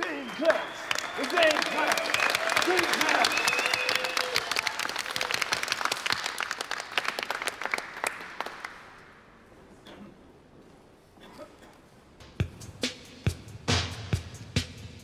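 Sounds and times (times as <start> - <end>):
audience clapping: 0.0 - 9.3.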